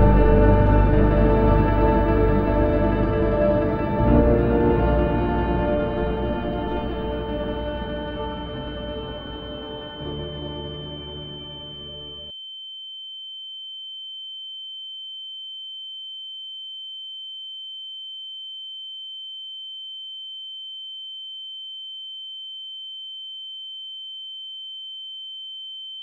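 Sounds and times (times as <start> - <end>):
faint lower tone: 0.0 - 13.2
high-pitched sine tone: 0.0 - 26.0.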